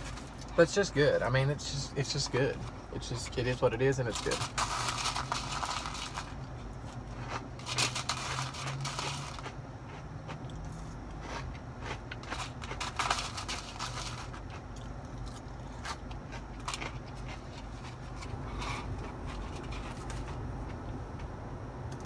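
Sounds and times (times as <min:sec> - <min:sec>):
steady low hum: 0:00.0 - 0:22.0
chewing crunchy food: 0:04.2 - 0:20.4.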